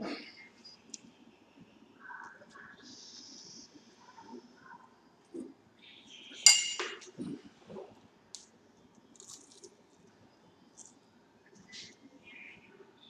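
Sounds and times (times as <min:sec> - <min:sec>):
dishware clink: 0:06.5 - 0:07.0
crisp bite into food: 0:09.2 - 0:09.8.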